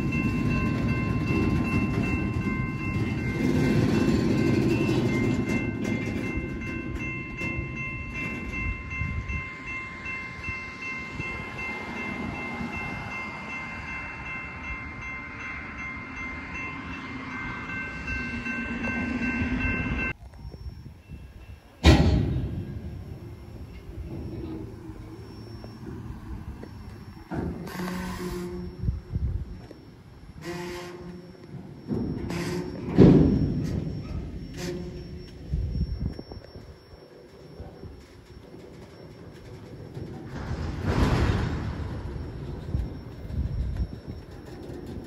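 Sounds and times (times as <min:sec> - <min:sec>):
freight train wheels rumbling on rails: 0:00.0 - 0:45.0.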